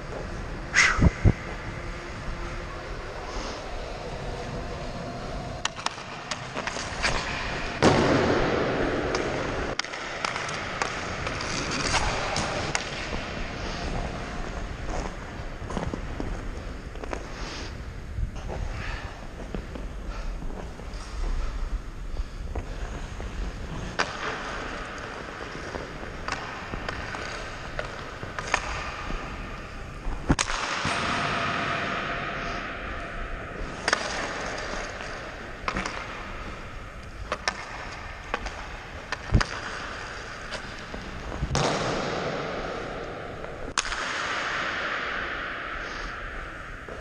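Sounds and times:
skates scraping across ice: 0.0 - 32.7, 33.6 - 47.0
hockey stick and puck clacks: 5.2 - 17.8, 22.5 - 32.7, 33.6 - 47.0.

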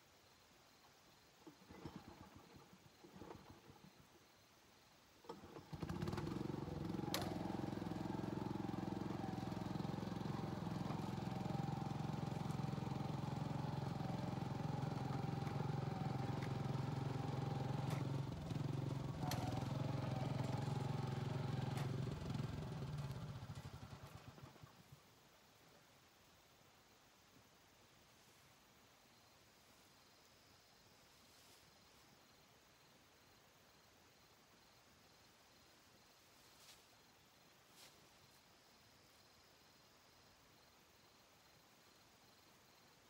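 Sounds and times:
engine running: 5.3 - 24.9.

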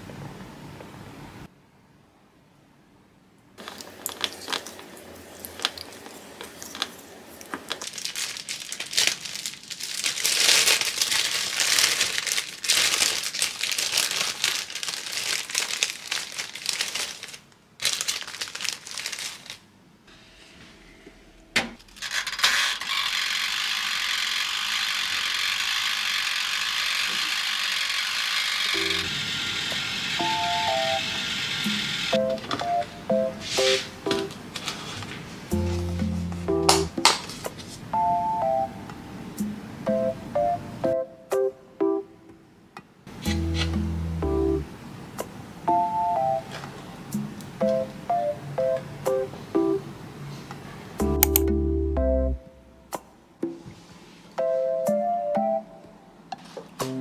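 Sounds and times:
plastic bag crinkling: 3.6 - 19.7
toaster oven hissing: 22.1 - 32.3
sharp click: 51.2 - 51.5.

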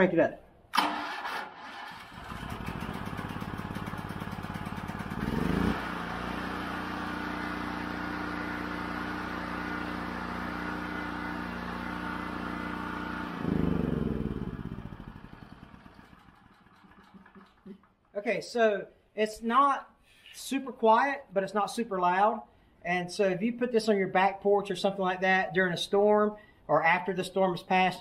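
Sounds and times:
portable generator engine running: 2.0 - 17.9.

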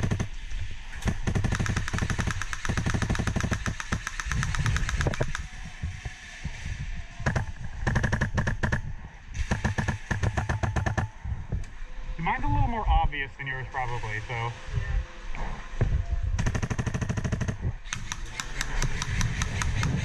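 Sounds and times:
airsoft rifle full-auto bursts: 0.0 - 0.4, 1.0 - 5.4, 7.3 - 8.8, 9.5 - 11.1, 16.4 - 20.0.

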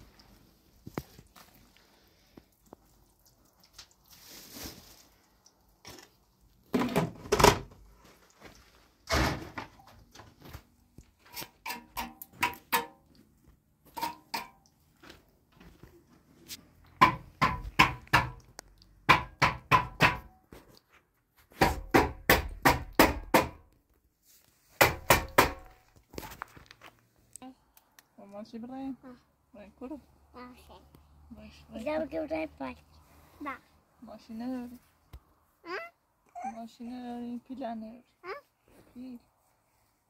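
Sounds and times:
sharp knocks: 17.0 - 18.4, 19.1 - 20.4, 21.6 - 23.6, 24.8 - 25.7.

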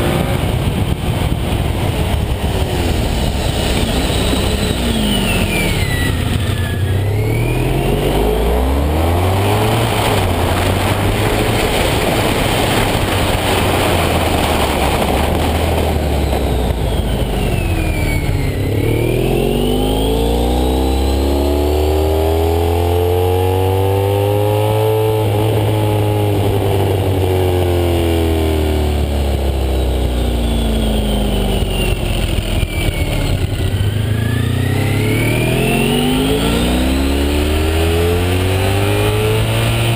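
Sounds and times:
wind rush: 0.0 - 21.2
motorcycle engine revving: 0.0 - 39.9
faint high whine: 0.9 - 22.6.

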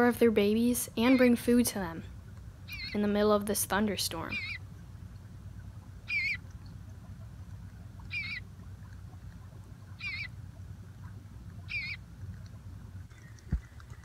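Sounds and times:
fledgling begging calls: 2.7 - 3.1, 4.2 - 4.7, 6.0 - 6.5, 8.0 - 8.5, 9.9 - 10.4, 11.6 - 12.0.

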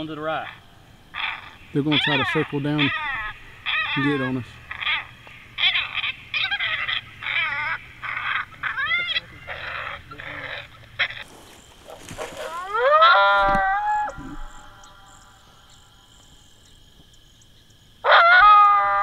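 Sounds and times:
coyotes yipping and howling: 0.0 - 19.0
howl call blown: 12.4 - 15.4, 18.0 - 19.0.

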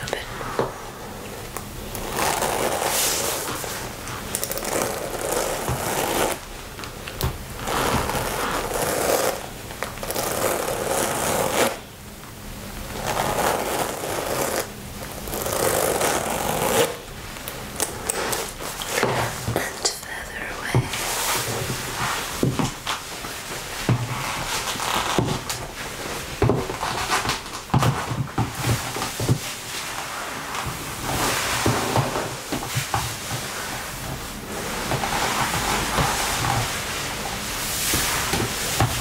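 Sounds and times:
hands rubbing leather jacket: 2.0 - 6.4, 7.6 - 11.8, 13.0 - 16.9, 21.0 - 27.4, 28.9 - 39.0.

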